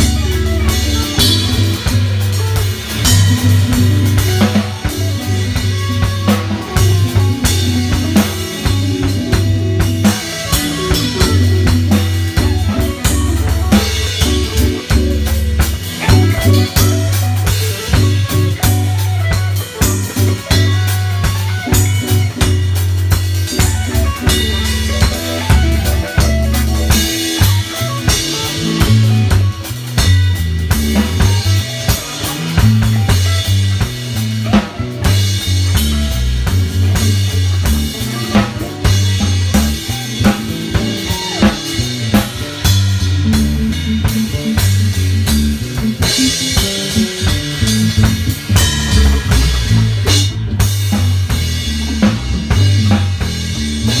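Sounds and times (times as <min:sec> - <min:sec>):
dub music with drums and bass: 0:00.0 - 0:54.0.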